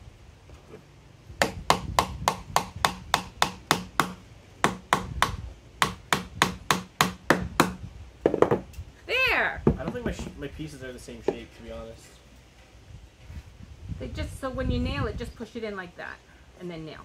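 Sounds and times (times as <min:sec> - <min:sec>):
hammer striking nails into wood: 0:01.4 - 0:08.6.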